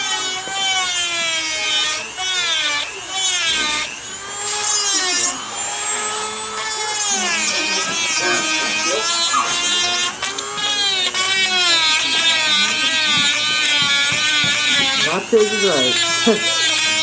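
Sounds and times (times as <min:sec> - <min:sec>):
rotary tool grinding teeth: 0:00.0 - 0:17.0.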